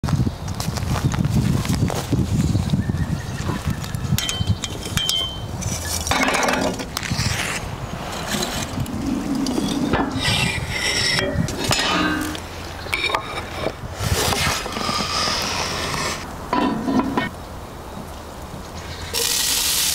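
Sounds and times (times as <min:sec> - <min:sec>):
light metallic clinks and knocks: 0:04.2 - 0:05.4
short rushing scrape: 0:13.2 - 0:16.2.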